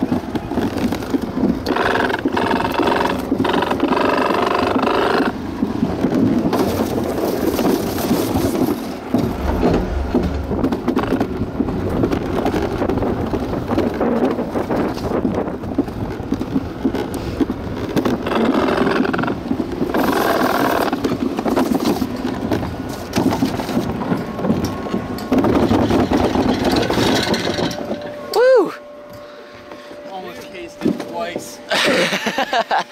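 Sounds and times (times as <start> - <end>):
sled rushing down a track: 5.6 - 18.0.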